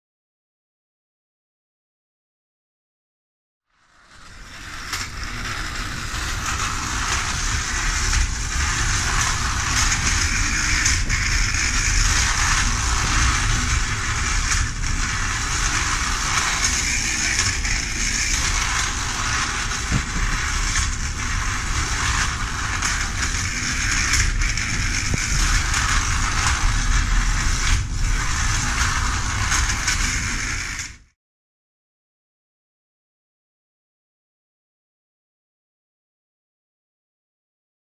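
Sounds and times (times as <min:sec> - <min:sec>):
clockwork spring motor whirring: 0:04.0 - 0:31.0
tin wheels rattling on track: 0:04.4 - 0:30.9.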